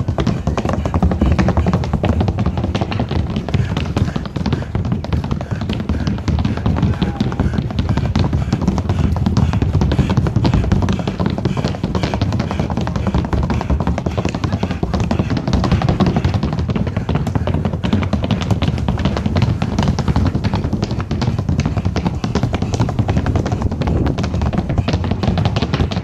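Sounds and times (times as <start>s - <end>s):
rapid percussive tapping: 0.0s - 26.0s.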